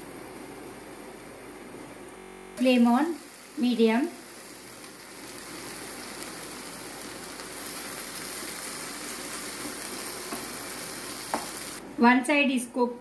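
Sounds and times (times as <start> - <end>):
prawns sizzling in oil: 2.6 - 11.8.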